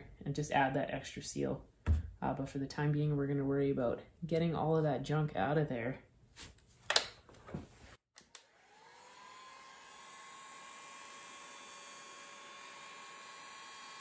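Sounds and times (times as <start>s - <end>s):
heat gun blowing and whining: 8.2s - 14.0s.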